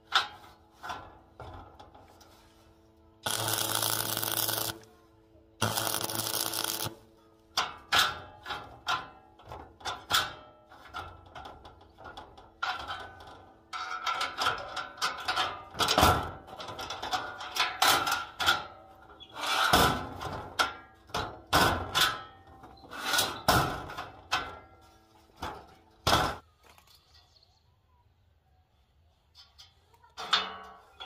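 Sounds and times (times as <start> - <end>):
metal clanking against metal: 5.6 - 26.4, 29.4 - 31.0.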